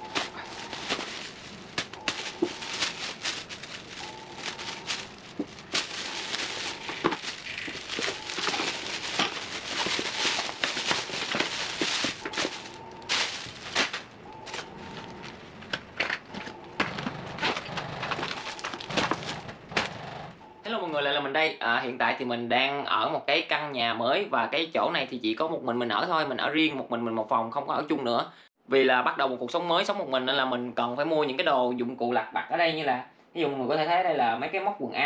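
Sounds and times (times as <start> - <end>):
plastic bag rustling: 0.0 - 20.0.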